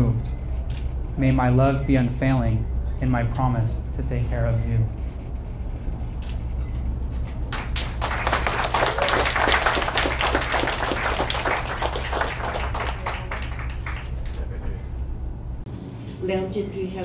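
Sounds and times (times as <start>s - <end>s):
steady low hum: 0.0s - 17.0s
crowd applauding: 7.4s - 14.8s.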